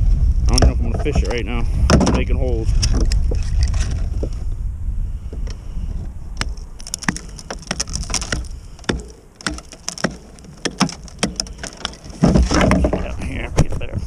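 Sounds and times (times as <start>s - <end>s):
hatchet chopping ice: 6.4s - 12.6s
ice splintering: 6.4s - 13.2s.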